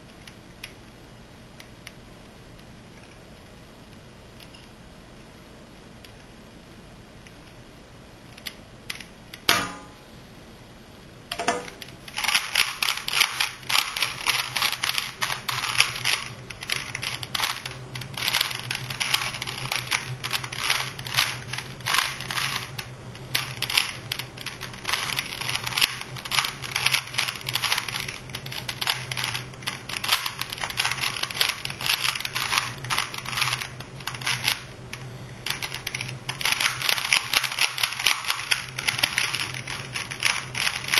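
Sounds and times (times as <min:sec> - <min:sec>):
steady low hum: 0:00.0 - 0:40.9
sharp knock: 0:09.5 - 0:10.0.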